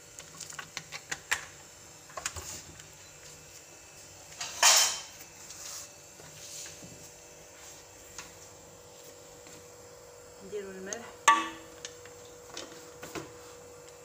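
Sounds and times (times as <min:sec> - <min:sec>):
kitchen clicks and knocks: 0:04.4 - 0:05.1.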